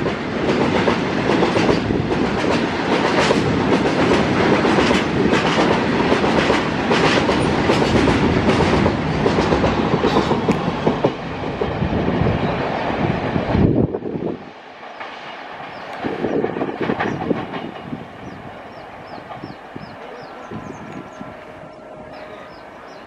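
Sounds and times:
train wheels clattering over joints: 0.0s - 11.8s, 14.8s - 23.0s.

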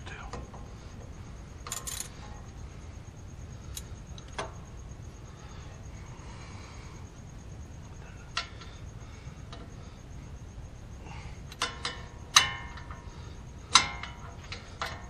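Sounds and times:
metal tools clinking: 1.6s - 2.2s.

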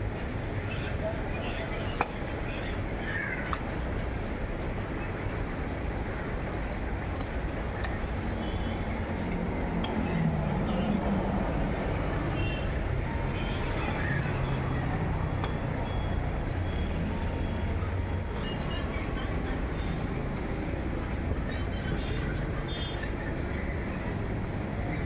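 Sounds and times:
faint voices: 7.5s - 25.0s.

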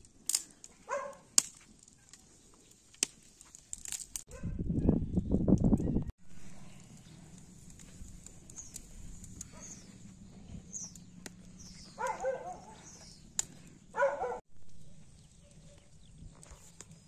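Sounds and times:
wood fire crackling: 0.0s - 4.3s, 5.5s - 17.0s
dog barking: 0.8s - 1.3s, 4.3s - 4.6s, 9.5s - 9.8s, 12.0s - 12.9s, 13.9s - 14.4s
small birds chirping: 4.8s - 17.0s.

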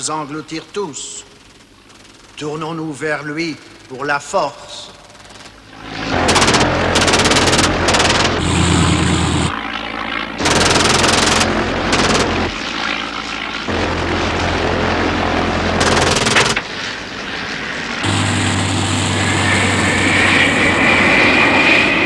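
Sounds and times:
propeller engines droning: 0.0s - 22.0s
machine-gun fire bursts: 6.2s - 8.5s, 10.4s - 12.6s, 13.7s - 16.7s.

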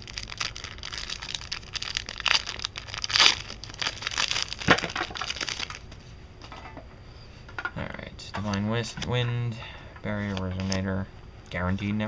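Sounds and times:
foil wrapper crinkling: 0.0s - 5.9s.

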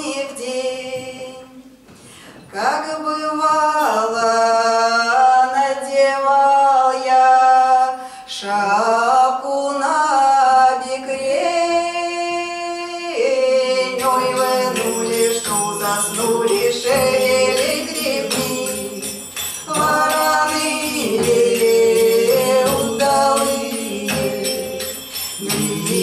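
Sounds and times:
women singing in harmony: 0.0s - 1.8s, 2.5s - 26.0s
jingling hand percussion: 3.8s - 4.6s, 13.8s - 26.0s.

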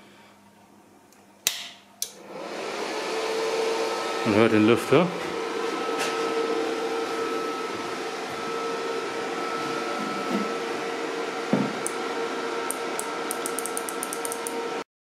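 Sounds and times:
welder cooling fan whirring: 0.0s - 14.9s.

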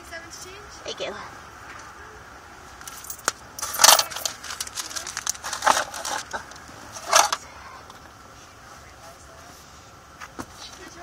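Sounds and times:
rustling and clinking coins: 2.8s - 7.4s.

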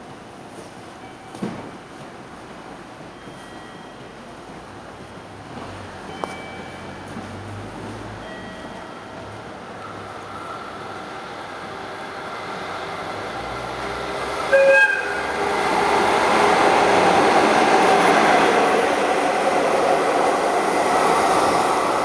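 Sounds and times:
locomotive horn blast: 14.5s - 15.3s.

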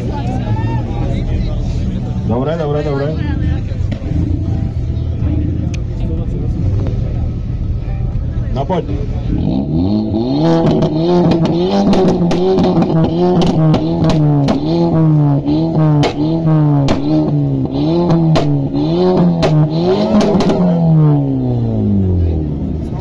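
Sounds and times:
car engine revving: 0.0s - 23.0s
exhaust pops and crackles: 10.6s - 20.7s.

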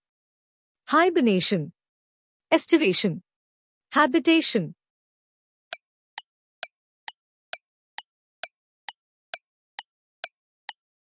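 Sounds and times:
countdown timer ticks: 5.7s - 10.8s.

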